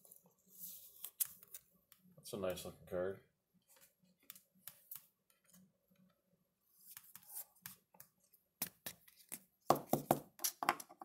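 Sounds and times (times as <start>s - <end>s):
cards rustling and sliding: 0.0s - 1.7s, 6.7s - 10.6s.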